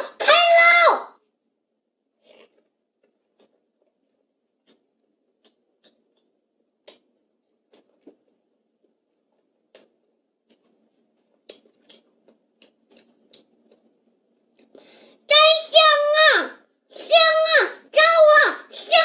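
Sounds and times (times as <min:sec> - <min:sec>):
child chewing food: 0:02.0 - 0:15.3.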